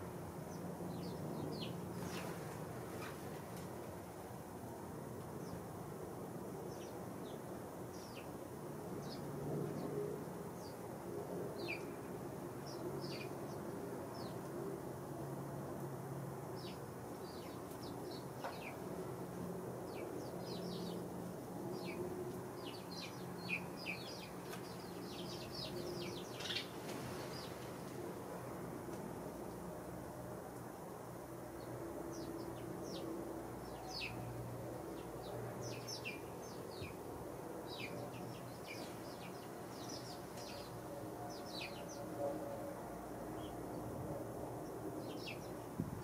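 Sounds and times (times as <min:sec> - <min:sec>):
sparrows chirping: 0:00.4 - 0:03.2, 0:06.6 - 0:10.8, 0:11.5 - 0:14.4, 0:16.6 - 0:18.9, 0:19.8 - 0:27.7, 0:31.6 - 0:42.1, 0:43.3 - 0:43.9, 0:44.6 - 0:45.8.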